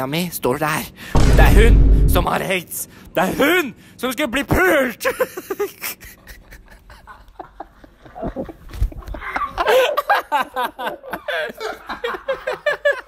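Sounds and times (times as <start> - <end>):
people laughing and snickering: 5.0 - 13.0.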